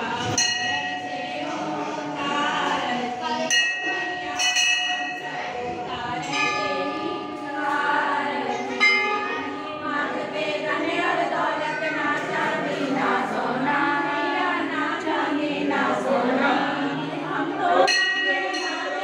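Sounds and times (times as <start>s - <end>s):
women singing a hymn in chorus: 0.0s - 19.0s
sharp ring: 3.5s - 5.5s.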